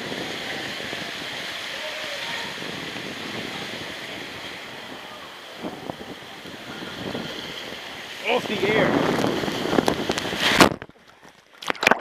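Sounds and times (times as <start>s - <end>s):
water hissing on slide: 0.0s - 10.8s
wind buffeting microphone: 0.0s - 11.0s.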